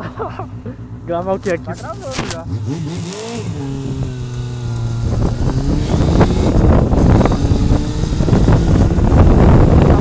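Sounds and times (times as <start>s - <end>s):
car engine rumble: 0.0s - 10.0s
wind buffeting microphone: 2.7s - 10.0s.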